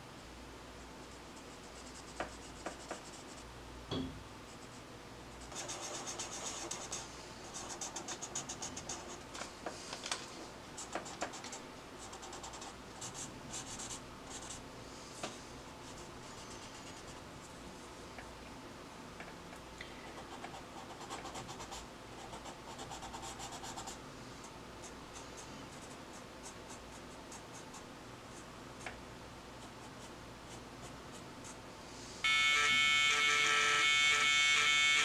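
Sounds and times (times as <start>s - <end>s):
pencil scratching on paper: 5.4s - 9.2s, 20.2s - 24.0s.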